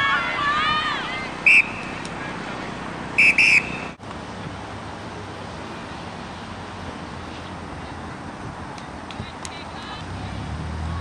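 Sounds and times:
outdoor background noise: 0.0 - 11.0
referee whistle blasts: 1.4 - 2.0, 3.2 - 4.0.

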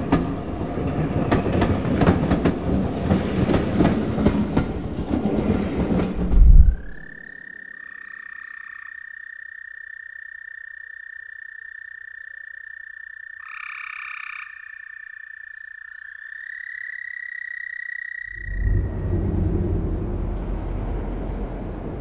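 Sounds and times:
fuller frog calls: 7.0 - 18.8
frog high trill: 7.1 - 18.7.

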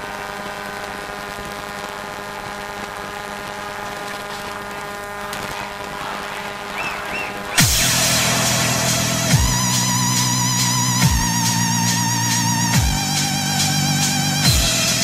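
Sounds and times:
sustained synth drone: 3.8 - 15.0
bass hit with falling pitch: 7.6 - 13.2.

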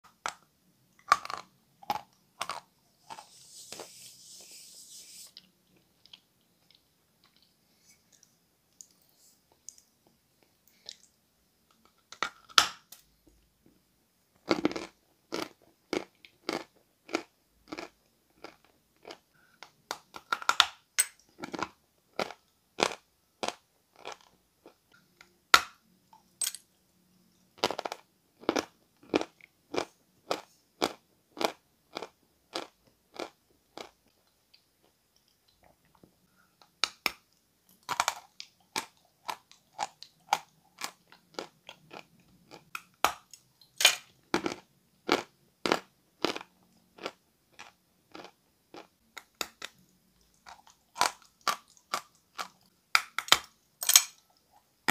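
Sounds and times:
chalk crunching while chewed: 44.4 - 48.9.

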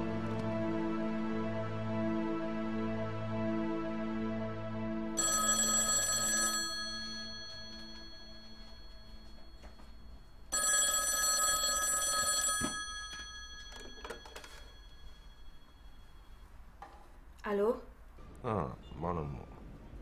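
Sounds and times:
telephone bell ringing: 5.2 - 16.6.

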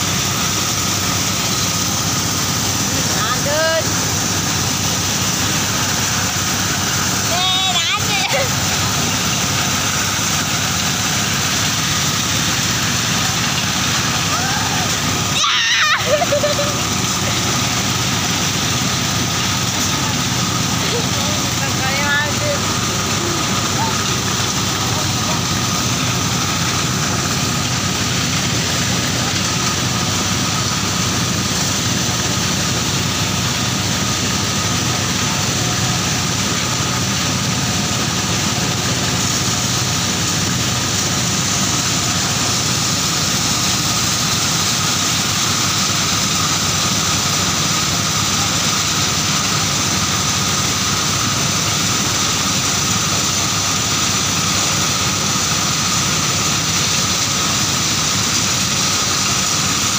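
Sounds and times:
milling machinery engine drone: 0.0 - 59.9
thin steady whine: 0.0 - 59.9.

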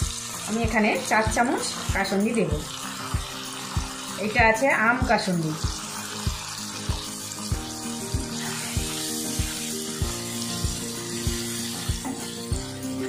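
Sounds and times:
background music with beat: 0.0 - 0.4, 3.1 - 13.0
vegetables sizzling in oil: 0.0 - 13.0.

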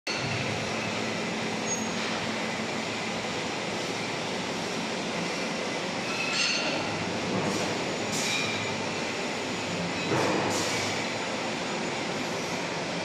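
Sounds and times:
high metallic squeal: 1.6 - 2.0.

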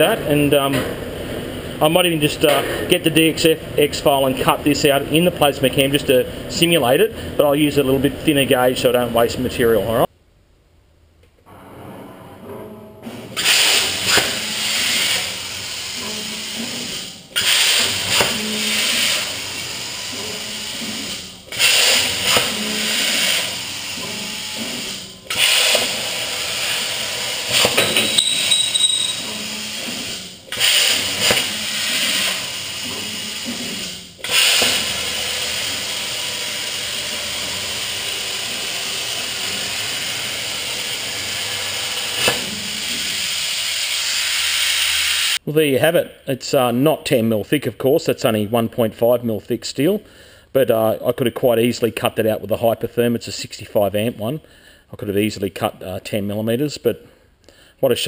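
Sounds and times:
plasma cutter hissing: 13.4 - 27.8, 29.4 - 45.4.

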